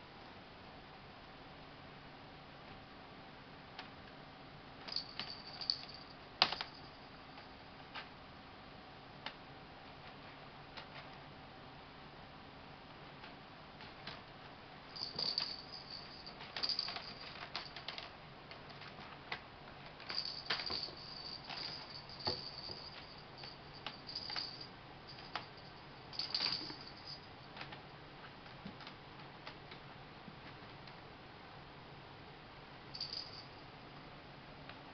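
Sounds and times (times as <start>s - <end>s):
cat toy ball rattling: 15.0s - 18.0s, 20.1s - 27.3s
toys and paws tapping on floor: 15.0s - 19.4s, 20.0s - 27.8s.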